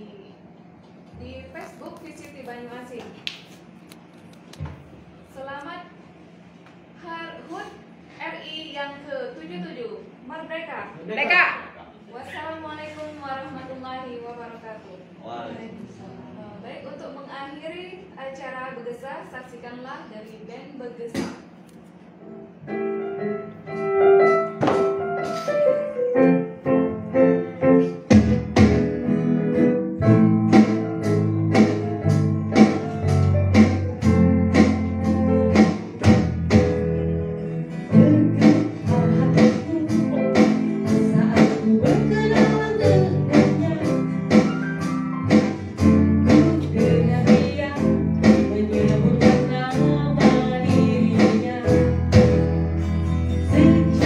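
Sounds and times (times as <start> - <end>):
keyboard: 22.3 - 54.0
acoustic guitar: 22.6 - 54.0
drums: 23.7 - 25.8, 26.7 - 37.2, 37.9 - 54.0
electric bass: 26.7 - 54.0
woman singing into a microphone: 37.8 - 44.5, 46.2 - 52.4, 53.5 - 54.0.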